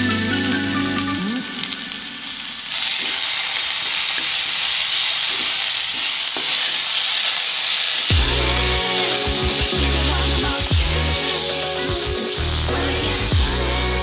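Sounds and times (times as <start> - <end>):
vegetables sizzling in hot oil: 0.0 - 14.0
wooden spatula scraping a wok: 2.8 - 13.3.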